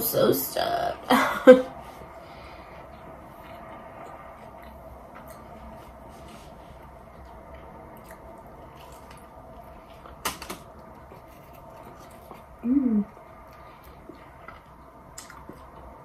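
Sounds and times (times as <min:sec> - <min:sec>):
low background hum: 0:00.0 - 0:16.0
person humming: 0:12.6 - 0:13.1.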